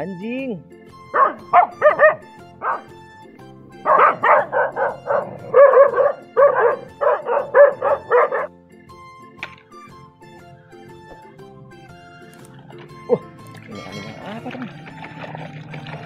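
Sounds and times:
background music: 0.0 - 16.0
dog barking: 1.1 - 3.0, 3.7 - 8.5.

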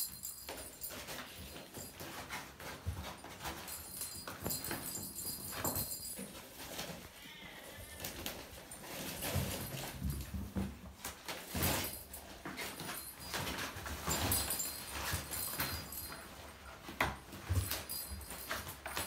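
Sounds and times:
rustling and scratching fabric: 0.0 - 19.0.

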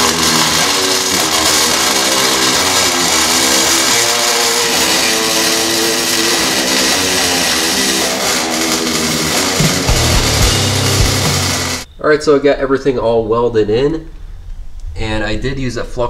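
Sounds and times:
rock music with electric guitar: 0.0 - 11.9.

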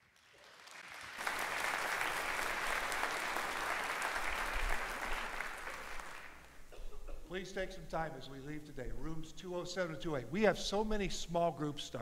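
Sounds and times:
crowd applauding: 0.0 - 6.6.

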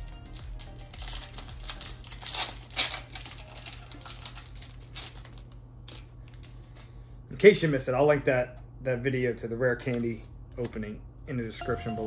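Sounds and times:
foil wrapper crinkling and tearing: 0.0 - 6.8.

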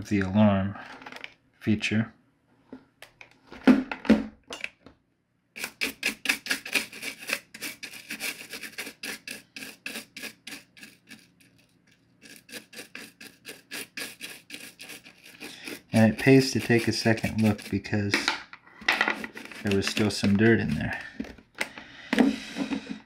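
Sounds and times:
toothbrush scrubbing plastic: 5.6 - 18.2, 19.1 - 21.0.

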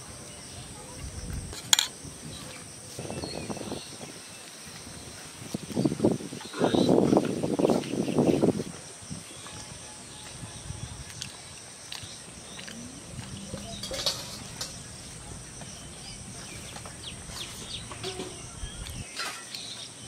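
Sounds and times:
bird chirps: 12.0 - 15.1
low rumble: 12.7 - 17.4.

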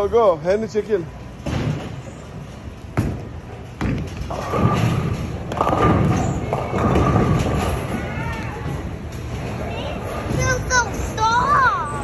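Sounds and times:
bowling ball rolling rumble: 3.0 - 10.4.

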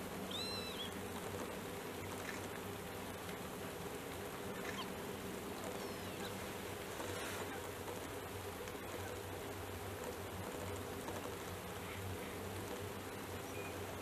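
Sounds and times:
faint chirps: 0.2 - 1.0, 5.6 - 7.7, 11.7 - 14.0.

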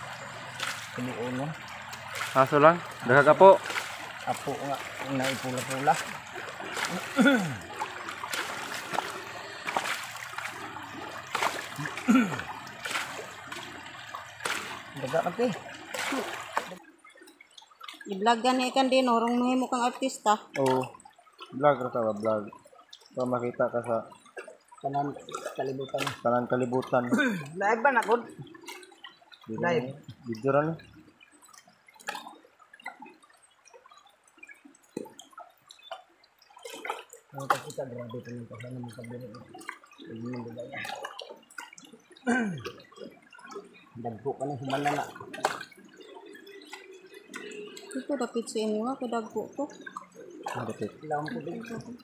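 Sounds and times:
short sharp splashes: 0.0 - 16.9, 31.4 - 48.1
river water sloshing around a pan: 0.0 - 52.0.

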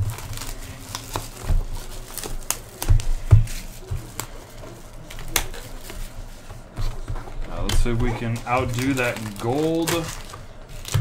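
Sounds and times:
foil packs crinkling: 0.0 - 11.0.

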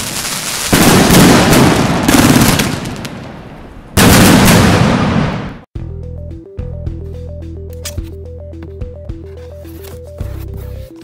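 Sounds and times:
loud firework blast: 0.0 - 5.6
fireworks shots and crackling: 0.0 - 5.7.

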